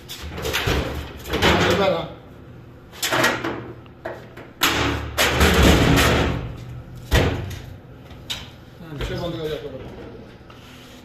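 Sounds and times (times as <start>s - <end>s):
heavy metal plate thud: 4.7s - 7.5s.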